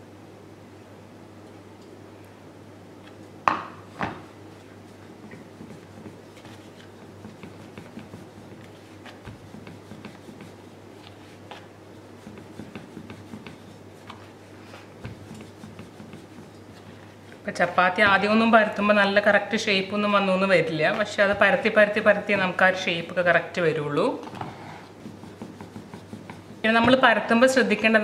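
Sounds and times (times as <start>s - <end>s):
rolling pin on steel board: 5.2s - 10.7s, 12.2s - 14.3s, 15.0s - 16.8s, 24.3s - 27.2s.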